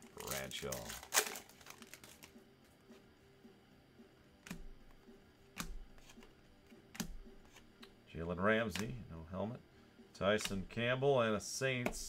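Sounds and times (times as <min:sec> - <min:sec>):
cards tapping and clicking on table: 0:05.6 - 0:06.3, 0:06.9 - 0:08.0, 0:10.4 - 0:10.7.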